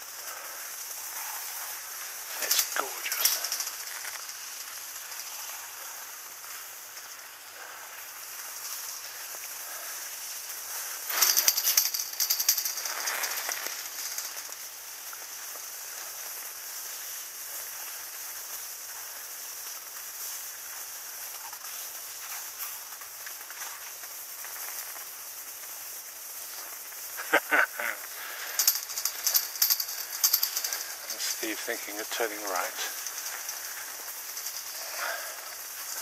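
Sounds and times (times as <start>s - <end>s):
rattling clatter: 1.1s - 7.1s, 10.7s - 14.7s, 28.3s - 36.0s.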